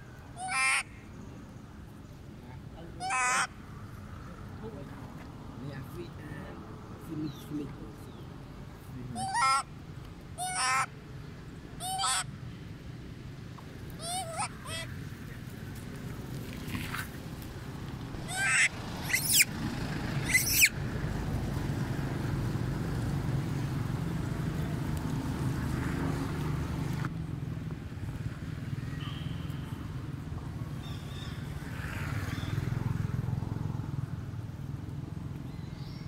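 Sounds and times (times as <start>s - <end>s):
monkey shrieking: 0.4s - 0.9s, 3.0s - 3.5s, 9.2s - 9.7s, 10.4s - 10.9s, 11.8s - 12.3s, 14.0s - 14.9s, 18.2s - 19.5s, 20.2s - 20.8s.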